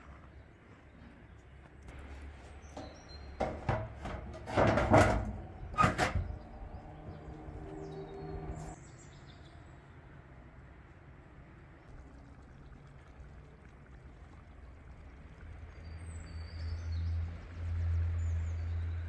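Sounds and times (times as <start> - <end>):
door panel scraping and knocking: 3.4 - 6.3
bird chirps: 6.2 - 9.7.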